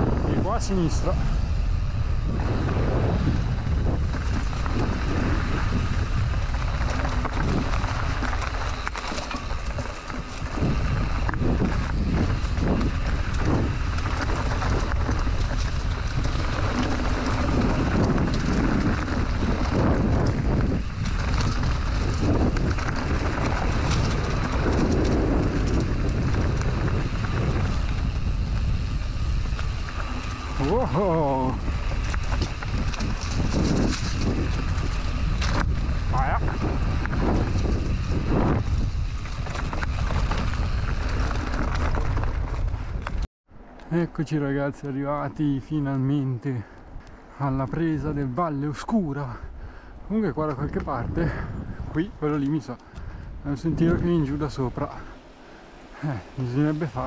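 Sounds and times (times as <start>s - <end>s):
bike knocking and rattling: 0.0s - 43.3s
tyre rumble on dirt trail: 0.0s - 43.3s, 47.6s - 57.0s
wind rushing over microphone: 0.0s - 57.0s.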